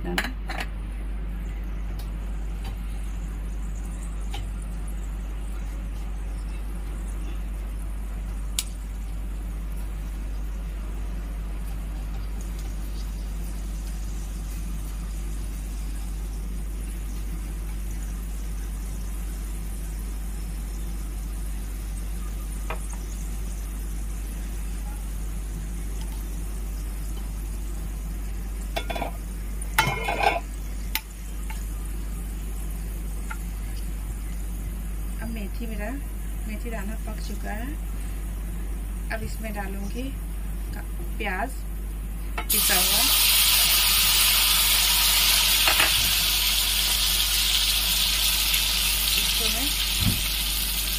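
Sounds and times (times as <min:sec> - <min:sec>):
constant low hum: 0:00.0 - 0:50.9
seeds sizzling in hot oil: 0:02.9 - 0:38.3, 0:42.4 - 0:50.9.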